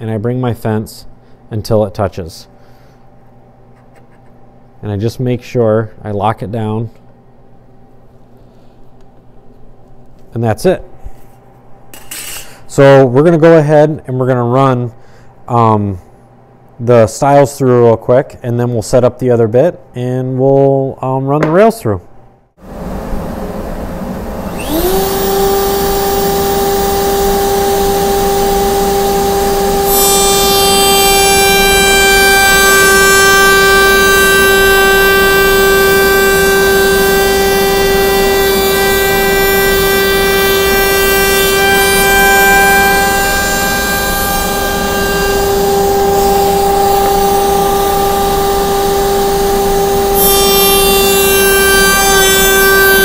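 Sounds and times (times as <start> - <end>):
router high whine: 22.6 - 53.0
router bit cutting wood: 22.7 - 53.0.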